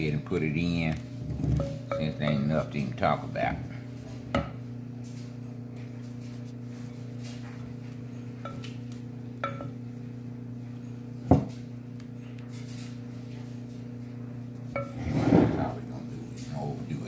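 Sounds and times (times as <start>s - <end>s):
low electrical hum: 0.0s - 17.0s
spatula and bowl clinking on metal pan: 1.6s - 2.5s, 9.4s - 9.8s.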